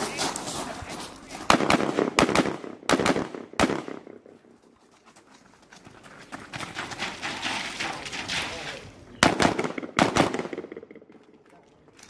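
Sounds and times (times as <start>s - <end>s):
running footsteps on wet gravel: 0.0s - 1.5s, 4.3s - 9.0s
gunshots with echo: 1.5s - 4.2s, 9.2s - 11.1s.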